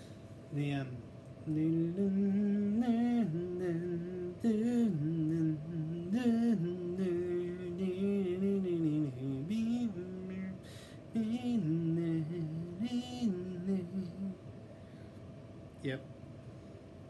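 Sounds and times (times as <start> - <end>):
man humming a tune: 11.2 - 14.4.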